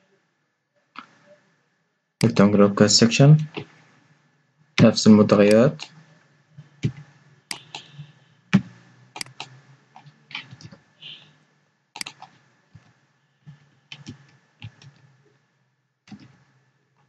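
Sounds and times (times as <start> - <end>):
faint steady hum: 0.0 - 17.0
computer keyboard typing: 4.8 - 6.0, 6.8 - 11.2, 12.0 - 12.9, 13.5 - 15.1, 16.1 - 16.4.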